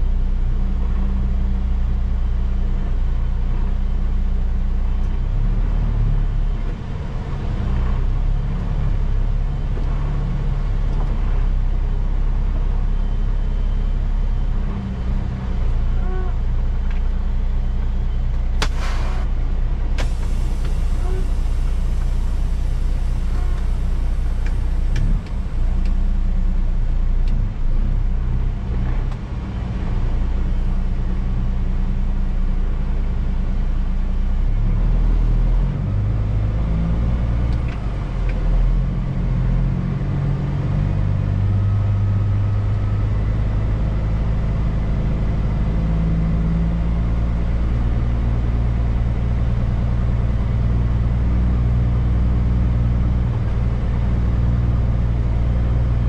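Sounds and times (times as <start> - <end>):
diesel truck engine pulling away: 17.1 - 32.2, 34.4 - 56.0.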